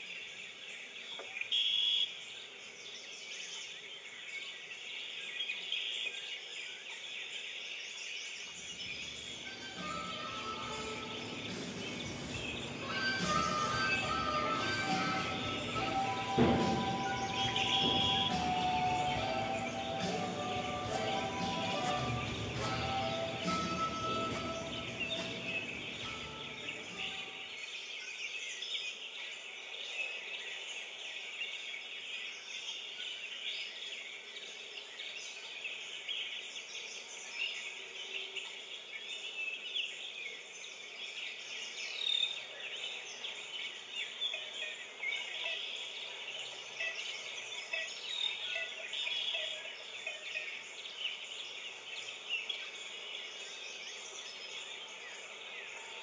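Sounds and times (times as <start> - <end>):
chorus of bird chirps: 0.0 - 56.0
steady hiss: 8.6 - 27.5.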